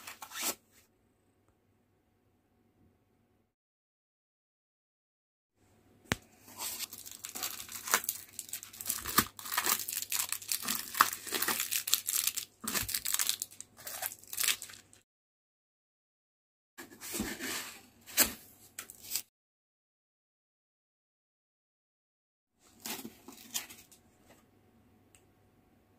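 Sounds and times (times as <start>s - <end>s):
plastic wrapping crinkling: 6.6s - 15.0s.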